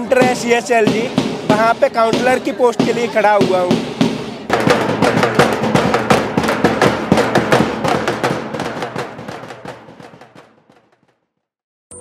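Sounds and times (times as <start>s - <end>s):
marching drum beating: 0.0s - 11.2s.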